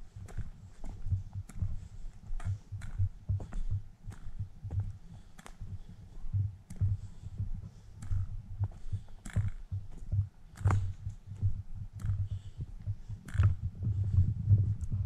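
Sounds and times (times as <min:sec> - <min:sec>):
footsteps on dirt trail: 0:00.0 - 0:15.0
sharp crunches and clicks: 0:08.0 - 0:08.2, 0:09.2 - 0:12.4, 0:13.2 - 0:13.6.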